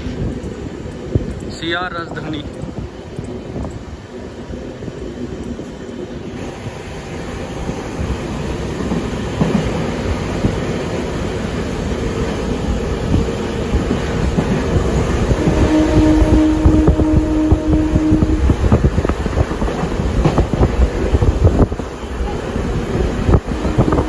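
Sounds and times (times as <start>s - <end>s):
train wheels clattering over rails: 7.2s - 24.0s.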